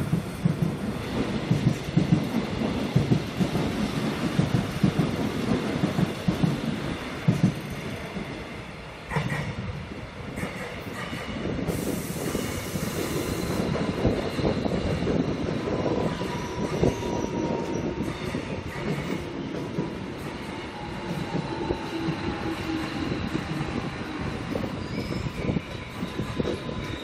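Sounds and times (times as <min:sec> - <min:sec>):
train wheels rumbling on rails: 0:00.0 - 0:27.0
high wheel squeal: 0:24.5 - 0:27.0.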